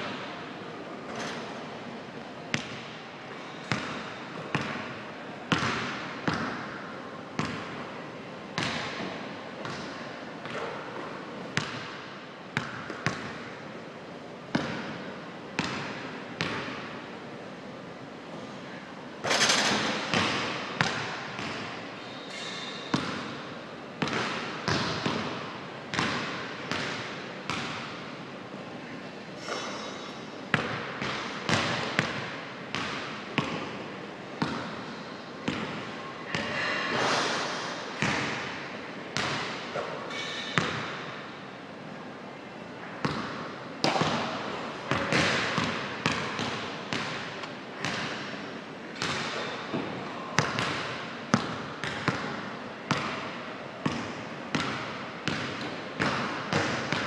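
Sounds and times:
basketballs bouncing on hardwood floor: 43.0s - 44.2s.

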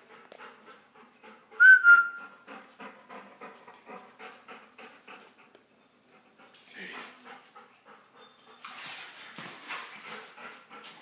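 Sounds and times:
dog panting: 0.0s - 11.0s
loud whistle: 1.6s - 2.2s.

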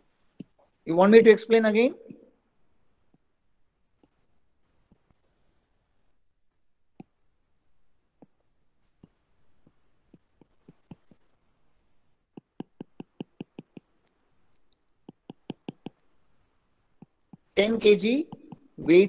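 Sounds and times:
stylus tapping on glass screen: 12.3s - 14.0s, 15.0s - 16.0s, 17.0s - 17.6s.

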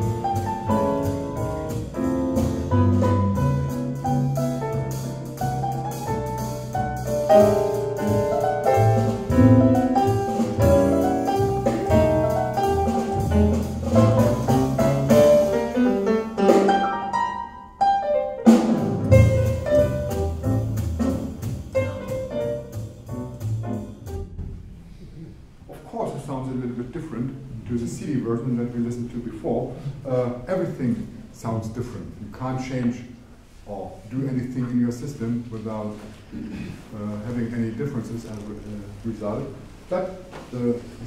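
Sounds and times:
piano and drums music on speakers: 0.0s - 24.9s.

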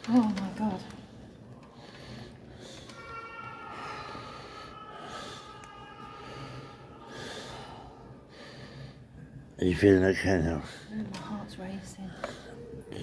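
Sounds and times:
person breathing hard: 3.7s - 9.4s.

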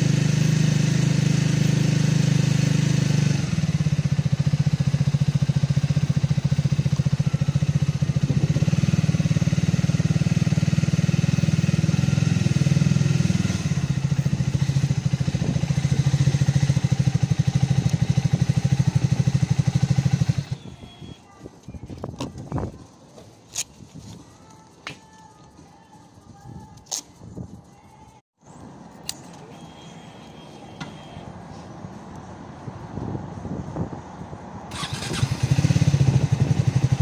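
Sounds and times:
motorcycle engine running: 0.0s - 22.9s, 34.7s - 37.0s.

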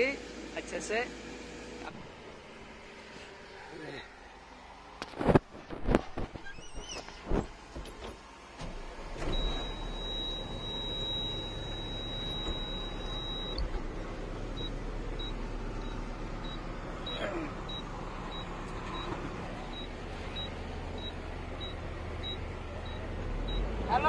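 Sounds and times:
truck engine humming: 7.1s - 24.0s
high electronic beep: 9.3s - 13.6s.

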